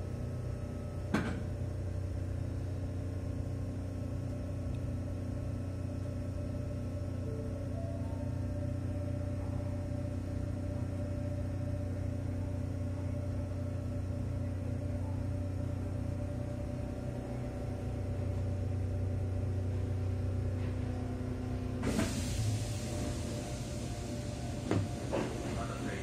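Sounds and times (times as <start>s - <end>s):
train rumbling: 7.0s - 26.0s.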